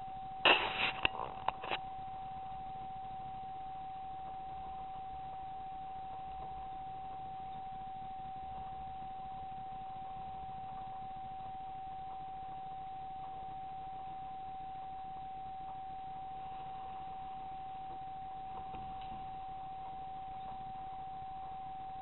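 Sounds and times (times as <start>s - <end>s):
high electronic whine: 0.3s - 22.0s
small clicks and knocks: 0.5s - 1.8s.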